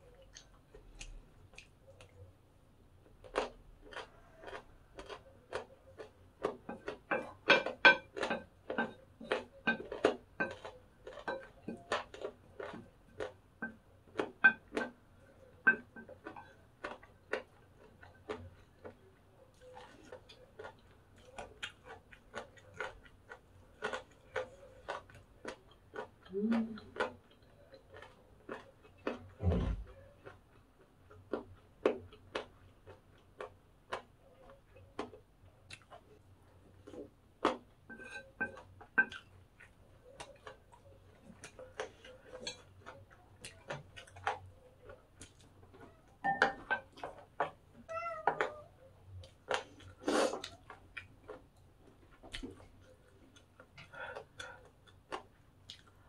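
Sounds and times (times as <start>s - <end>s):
crunchy chewing: 0.0s - 56.0s
chopsticks scraping ceramic plate: 37.9s - 39.1s.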